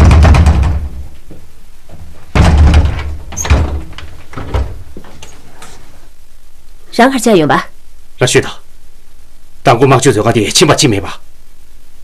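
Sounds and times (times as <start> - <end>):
fist banging on door: 0.0 - 1.1, 2.3 - 5.1.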